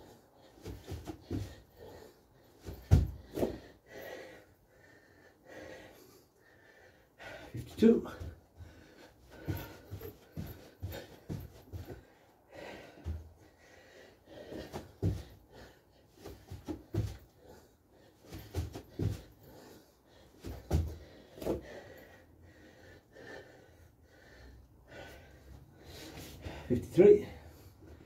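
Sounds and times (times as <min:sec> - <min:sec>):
man breathing heavily: 0:00.0 - 0:28.0
feet thudding on floor: 0:02.6 - 0:03.7, 0:08.1 - 0:12.0, 0:16.2 - 0:17.3, 0:18.3 - 0:19.4, 0:20.4 - 0:21.7.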